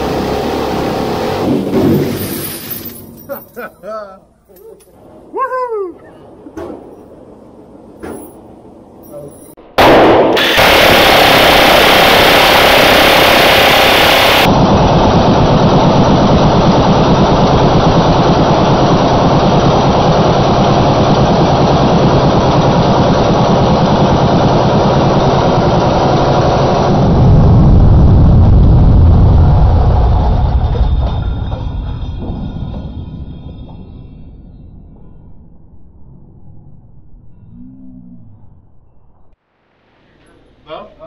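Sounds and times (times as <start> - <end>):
minigun firing continuous burst: 9.8 - 27.9.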